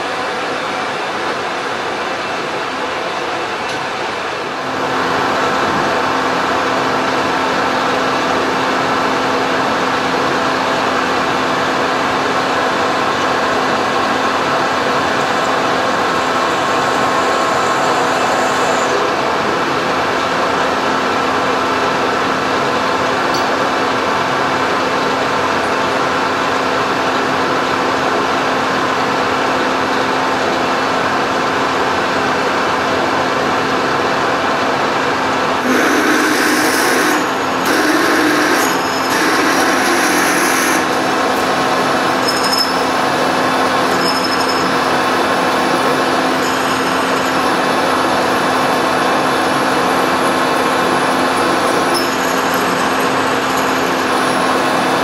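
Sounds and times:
metal lathe whirring: 0.0 - 55.0.

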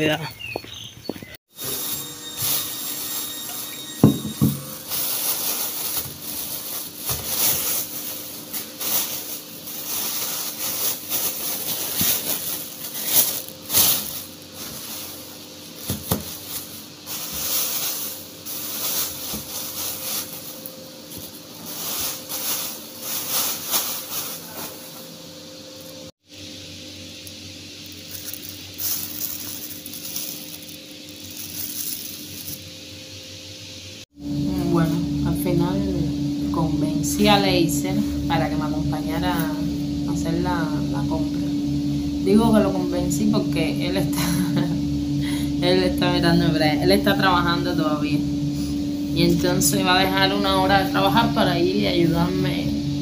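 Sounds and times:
plastic bags rustling: 1.5 - 25.2, 27.8 - 32.7.

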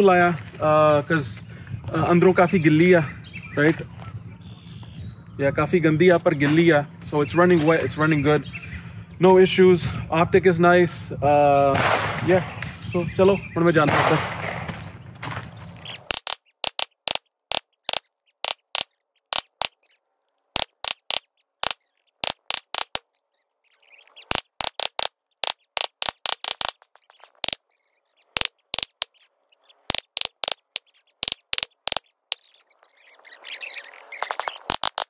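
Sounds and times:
sped-up gunshot cracks: 11.7 - 12.8, 13.8 - 14.8.

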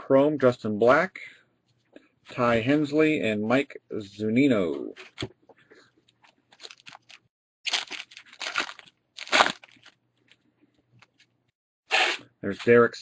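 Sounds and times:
foil wrapper crinkling and tearing: 6.5 - 10.4.

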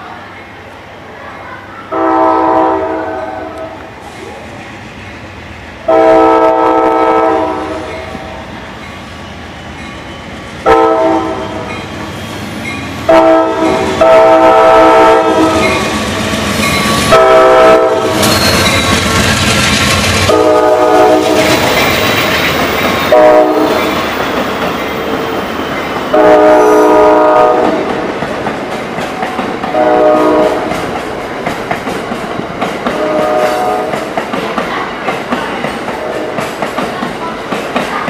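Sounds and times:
passenger cars rumbling: 0.0 - 38.0
locomotive air horn blasts: 1.9 - 3.8, 5.9 - 8.2, 10.6 - 11.7, 13.1 - 15.6, 17.1 - 18.2, 20.3 - 21.6, 23.1 - 23.9, 26.1 - 27.8, 29.7 - 30.7, 32.9 - 33.9.

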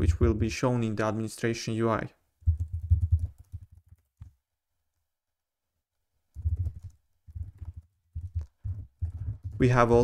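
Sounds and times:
computer keyboard typing: 2.5 - 4.3, 6.3 - 9.8.

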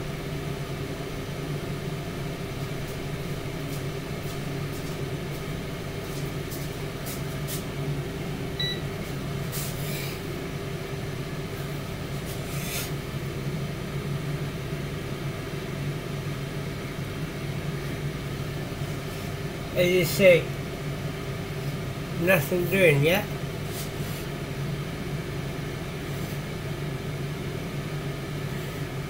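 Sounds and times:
air fryer fan hum: 0.0 - 29.0
short electronic beep: 8.6 - 8.8.

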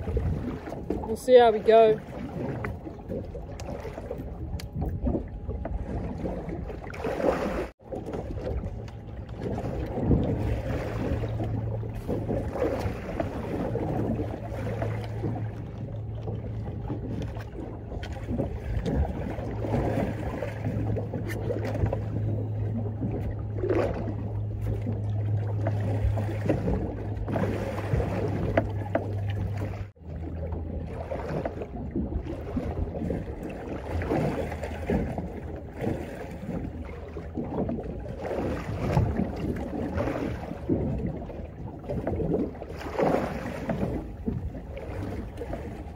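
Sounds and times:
wind on microphone: 0.0 - 25.0
low motor hum: 0.0 - 45.9
sea sloshing against boat hull: 0.0 - 45.9.

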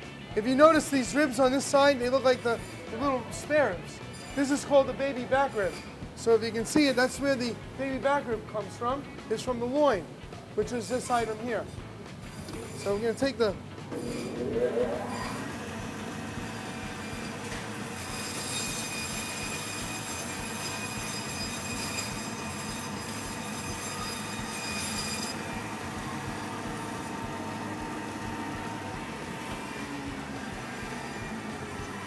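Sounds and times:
meat bandsaw whining: 0.8 - 6.0, 12.3 - 13.2, 13.9 - 32.0.

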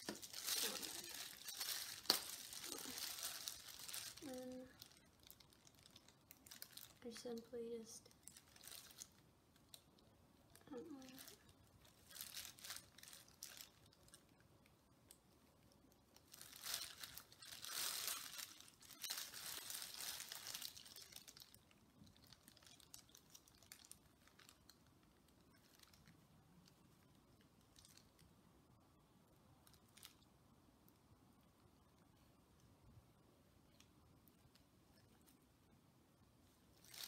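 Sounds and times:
plastic gloves and sheet crinkling: 0.0 - 14.5, 15.1 - 28.2, 36.7 - 37.0.

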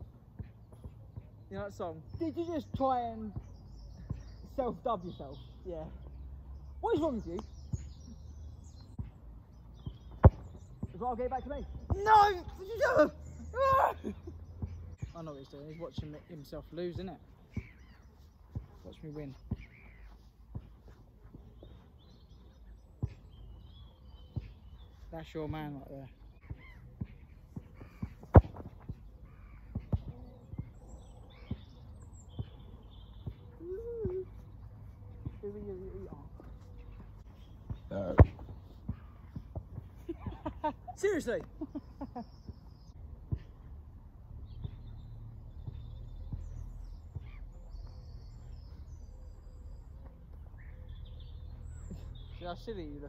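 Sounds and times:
small birds chirping: 0.0 - 53.0
football kicked thud: 9.8 - 11.0, 27.0 - 29.0, 37.7 - 39.9.

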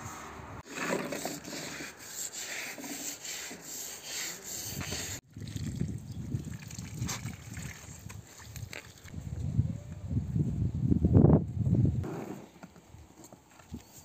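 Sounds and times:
carpet scrubbed on concrete: 0.0 - 5.2.

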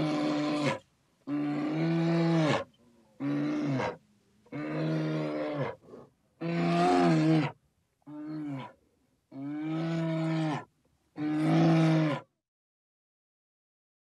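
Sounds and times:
animal calling in long cries: 0.0 - 5.8, 6.4 - 8.7, 9.3 - 12.3.

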